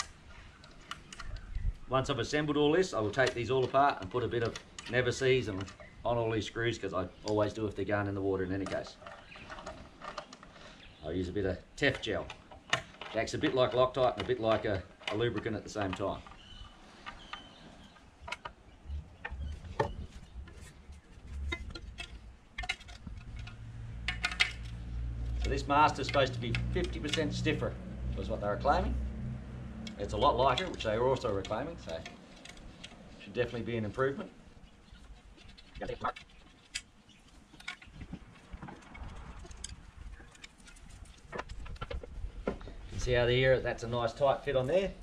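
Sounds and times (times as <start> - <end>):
small clicks and knocks of parts: 0.0 - 1.7, 2.8 - 6.0, 8.5 - 10.9, 11.8 - 42.8.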